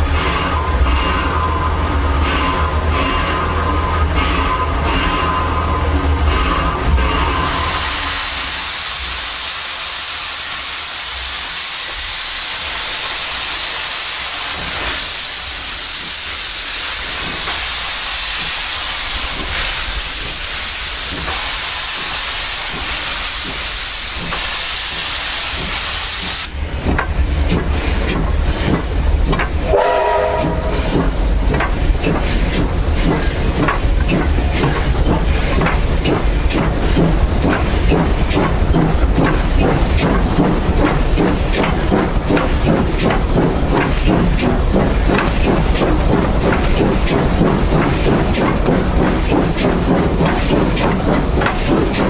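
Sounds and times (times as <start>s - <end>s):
steam hissing: 0.0s - 52.0s
running gear clanks and knocks: 26.8s - 29.6s, 30.8s - 52.0s.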